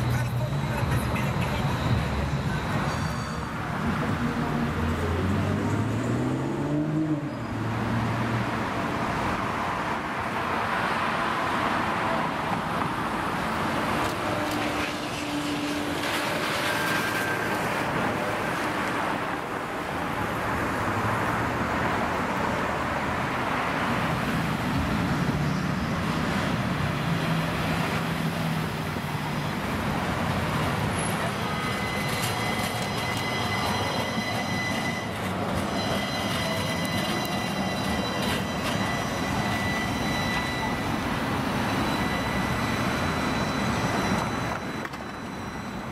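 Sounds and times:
cars passing: 0:00.0 - 0:45.9
streetcar rolling past: 0:00.0 - 0:45.9
steady high multi-tone whine: 0:30.6 - 0:45.9.

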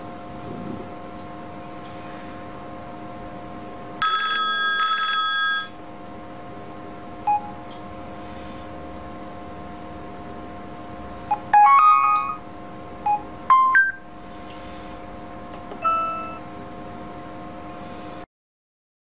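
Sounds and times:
faint electrical hum: 0:00.0 - 0:18.3
phone text message alert: 0:11.3 - 0:12.4, 0:15.8 - 0:16.4
short beep: 0:15.8 - 0:16.4.

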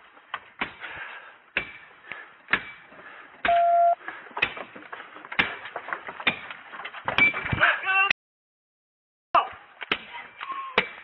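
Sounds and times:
loud electronic beep: 0:03.5 - 0:04.0
sharp knocks and clatter: 0:04.0 - 0:07.7.

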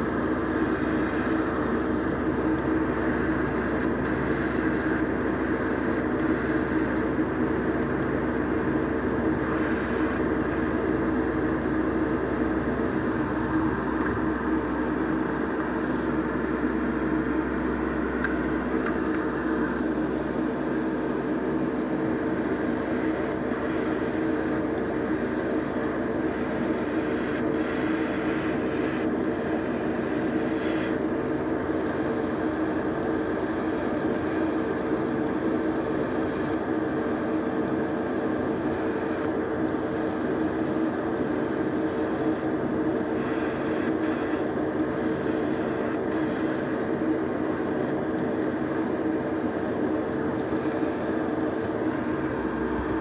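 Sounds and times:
airbrush hissing: 0:30.4 - 0:31.0.

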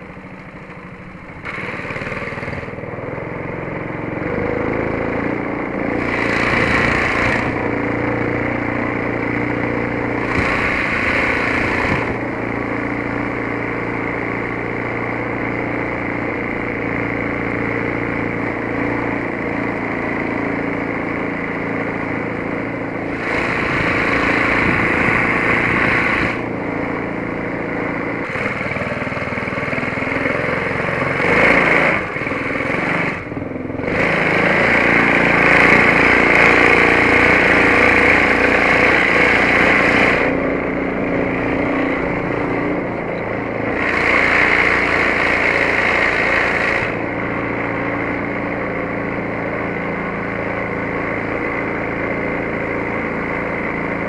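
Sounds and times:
boat motor droning: 0:00.0 - 0:54.0
rushing hiss: 0:10.2 - 0:12.2, 0:23.1 - 0:26.4.

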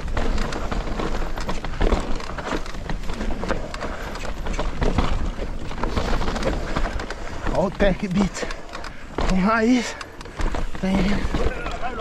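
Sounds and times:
bike frame and chain clattering: 0:00.0 - 0:12.0
bike tyres rumbling on trail: 0:00.0 - 0:12.0.

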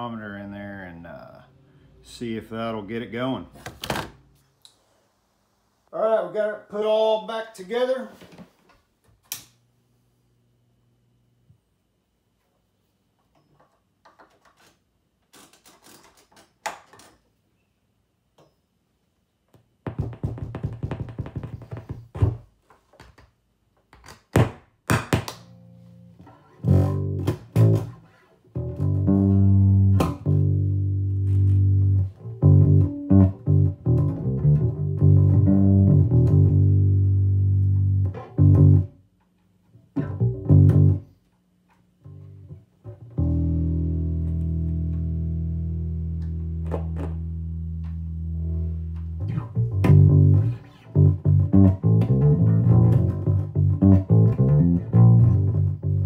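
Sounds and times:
plucked electric bass notes: 0:25.4 - 0:39.0, 0:39.9 - 0:41.1, 0:42.0 - 0:56.0.

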